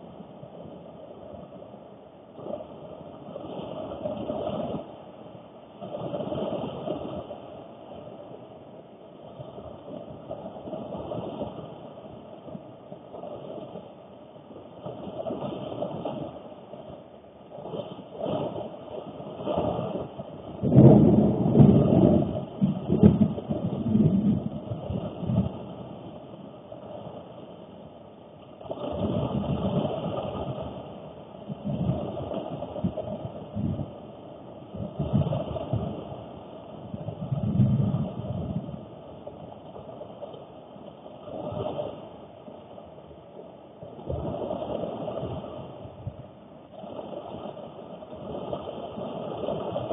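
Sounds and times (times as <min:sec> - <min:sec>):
heavy rain drumming on car roof: 0:20.6 - 0:25.8.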